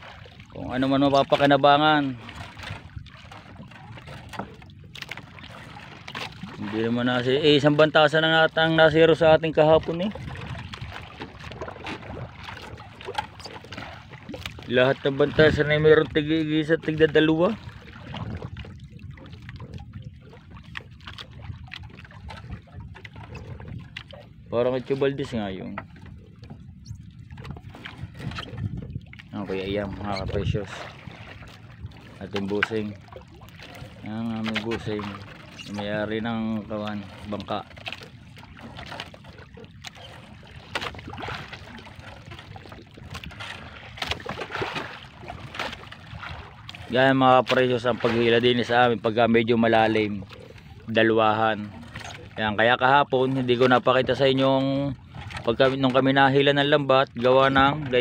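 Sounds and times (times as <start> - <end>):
water trickling and splashing: 0.0 - 58.0
net and rope knocking on hull: 36.6 - 48.4.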